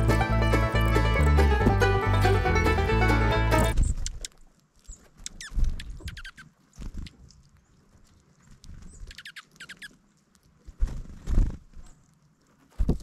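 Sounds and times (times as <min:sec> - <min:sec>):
birds pecking and hopping in seed: 0:03.7 - 0:13.0
birds chirping: 0:04.9 - 0:10.2.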